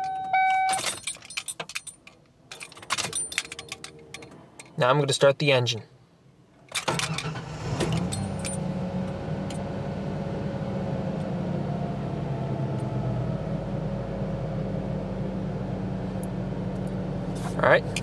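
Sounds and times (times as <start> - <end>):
car engine starting and idling: 6.8 - 18.0.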